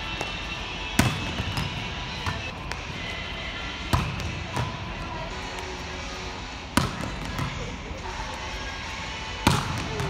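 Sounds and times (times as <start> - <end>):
gym background noise: 0.0 - 10.0
ball bouncing on hardwood court: 1.0 - 3.0, 3.9 - 4.8, 6.8 - 7.7, 9.4 - 10.0
volleyball smacks: 9.4 - 10.0.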